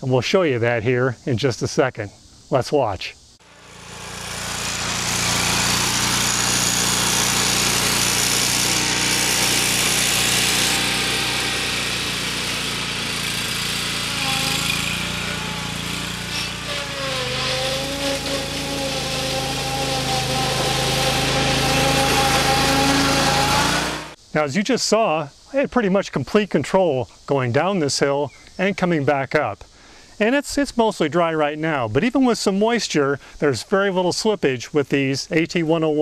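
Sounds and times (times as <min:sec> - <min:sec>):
riding mower engine running: 0:03.4 - 0:24.2.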